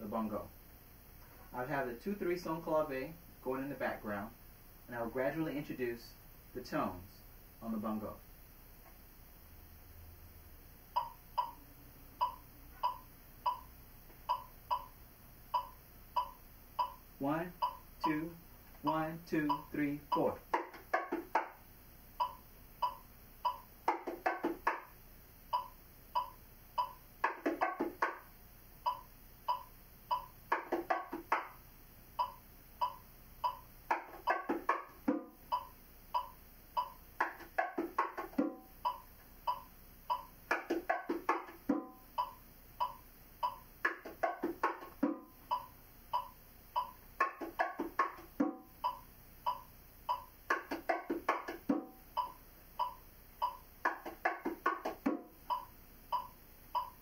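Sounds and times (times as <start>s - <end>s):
bongos playing: 18.9s - 21.6s, 22.2s - 24.9s, 25.6s - 28.3s, 28.9s - 31.6s, 32.2s - 55.7s.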